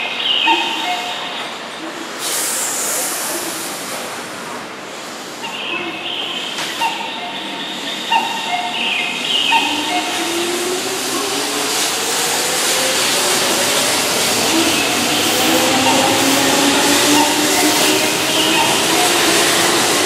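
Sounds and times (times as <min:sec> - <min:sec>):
train wheel rolling noise: 0:09.5 - 0:20.0.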